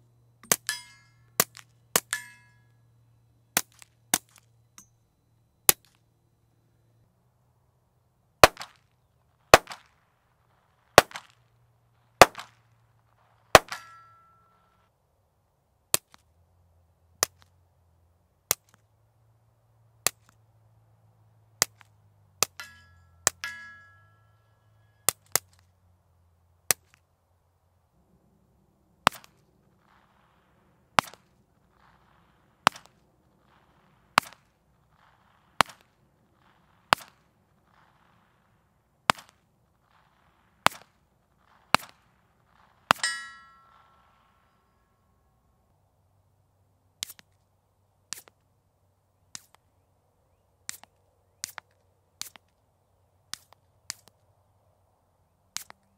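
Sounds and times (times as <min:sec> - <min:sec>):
steady background noise: 0:00.0 - 0:55.9
short metallic ring: 0:00.4 - 0:01.4, 0:02.0 - 0:03.0, 0:13.6 - 0:14.9, 0:22.5 - 0:25.2, 0:42.9 - 0:44.1
pistol shots: 0:08.4 - 0:08.8, 0:09.5 - 0:10.0, 0:11.0 - 0:11.4, 0:12.2 - 0:12.6, 0:13.5 - 0:14.6, 0:29.0 - 0:38.2
suppressed pistol shots: 0:08.4 - 0:08.8, 0:12.2 - 0:12.6, 0:13.5 - 0:14.4.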